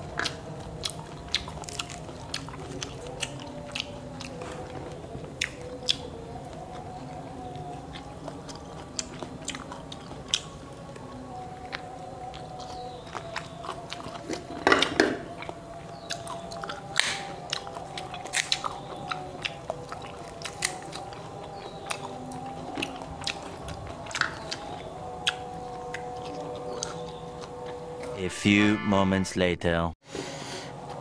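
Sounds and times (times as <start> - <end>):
chewing and mouth noises: 0.0 - 28.2
fruit shells cracking: 11.7 - 27.8.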